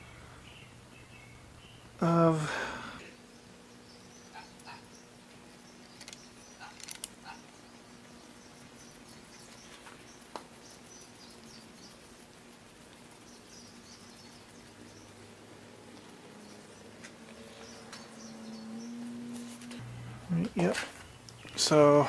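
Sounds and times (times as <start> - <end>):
low steady hum: 0.0 - 22.0
faint high chirping: 3.0 - 19.5.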